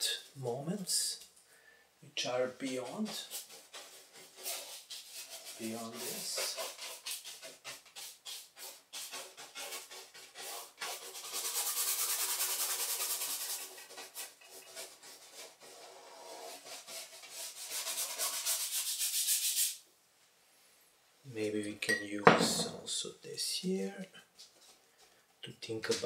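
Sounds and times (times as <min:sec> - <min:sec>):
paintbrush scrubbing on canvas: 0:02.4 - 0:19.8.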